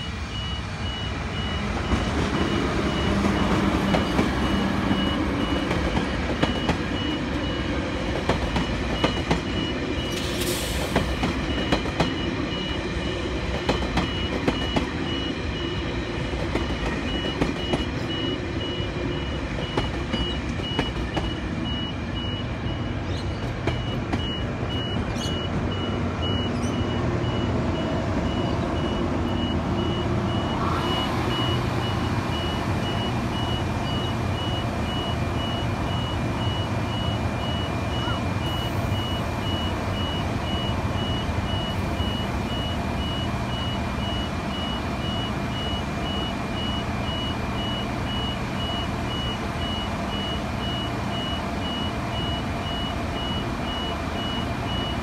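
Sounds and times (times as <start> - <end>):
level crossing warning bells: 0.0 - 23.0, 23.6 - 55.0
diesel train engine running: 0.0 - 55.0
train hiss: 10.0 - 11.3.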